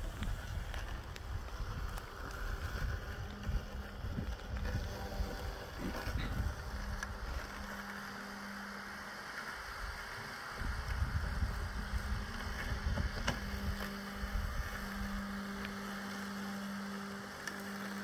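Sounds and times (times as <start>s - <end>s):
wind rumble on microphone: 0.0s - 7.8s, 10.6s - 16.0s
lawn mower motor hum: 0.0s - 18.0s.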